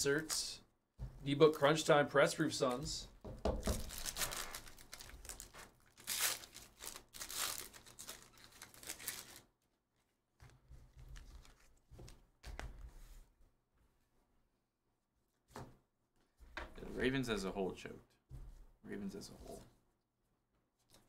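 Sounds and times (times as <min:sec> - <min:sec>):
foil wrappers crinkling and tearing: 0:03.8 - 0:09.5.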